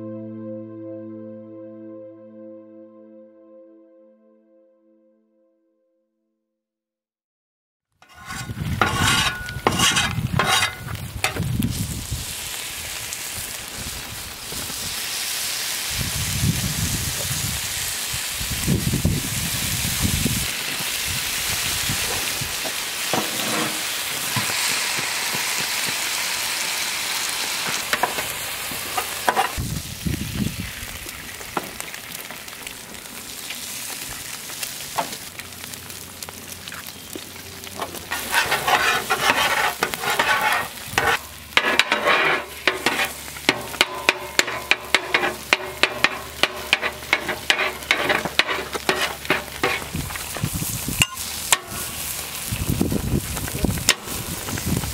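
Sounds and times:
metal spatula scraping griddle: 8.0 - 11.4, 22.0 - 26.0, 27.6 - 29.6, 37.9 - 50.3
bacon and eggs sizzling: 8.0 - 54.9.

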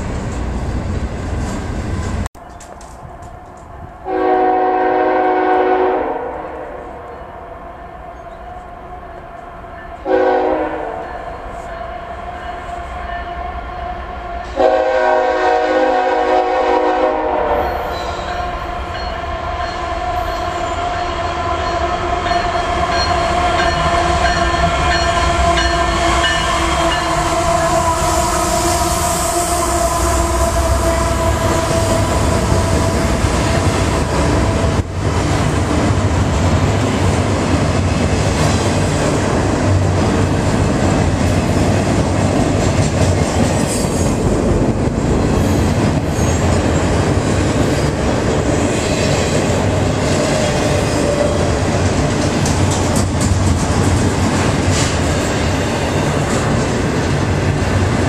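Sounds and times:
train cars rolling on rails: 0.0 - 5.8, 7.1 - 58.0
locomotive air horn blasts: 4.0 - 7.0, 10.0 - 11.1, 13.2 - 19.0, 24.4 - 33.4.

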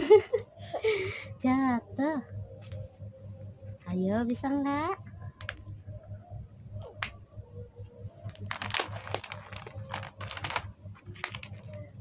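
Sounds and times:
plastic wrapper crinkling: 8.2 - 12.0.

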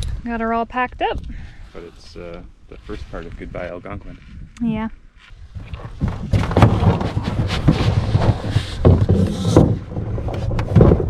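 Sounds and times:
thuds and scraping on canoe hull: 5.4 - 11.0.

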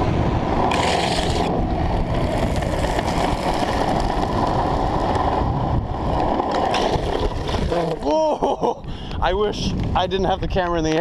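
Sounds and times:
skateboard wheels rolling on asphalt: 0.0 - 11.0
wind buffeting microphone: 0.0 - 11.0.

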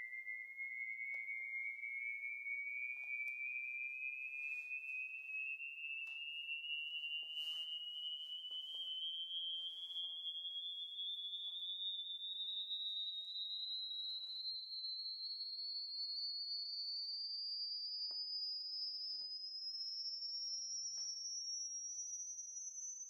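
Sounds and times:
sine tone sweeping upward: 0.0 - 16.6.

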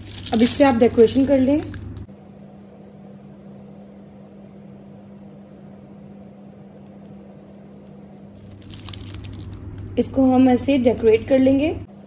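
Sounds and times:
plastic piping bag crinkling: 0.0 - 2.1, 6.7 - 11.8
low background hum: 0.0 - 12.0.

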